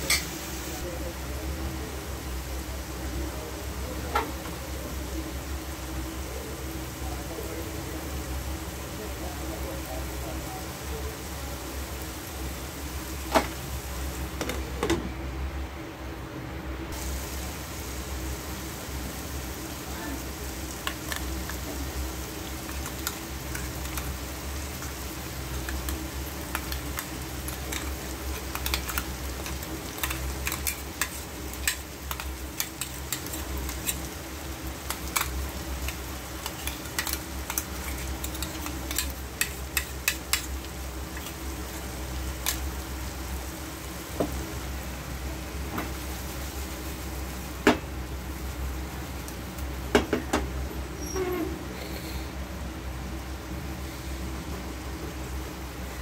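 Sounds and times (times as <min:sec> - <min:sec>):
food sizzling: 0:00.0 - 0:15.0, 0:16.9 - 0:51.5
utensil tapping and scraping pan: 0:25.6 - 0:34.1, 0:34.9 - 0:40.5.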